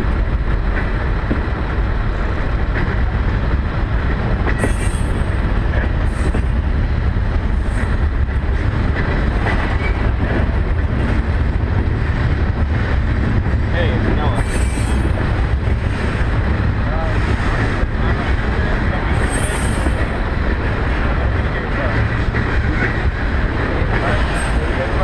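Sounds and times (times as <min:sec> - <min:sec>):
train wheels rumbling on rail: 0:00.0 - 0:25.0
wheels clacking over rail joints: 0:00.0 - 0:25.0.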